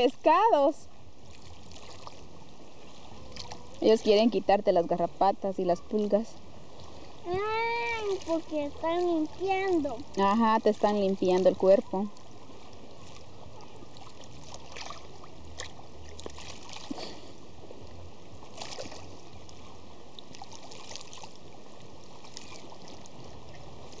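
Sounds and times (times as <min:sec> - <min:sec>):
water splashing and trickling: 0:00.0 - 0:24.0.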